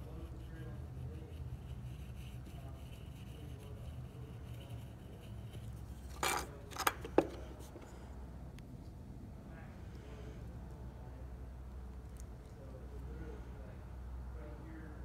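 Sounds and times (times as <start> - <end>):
steady low hum: 0.0 - 15.0
metal block scraping: 6.0 - 7.4.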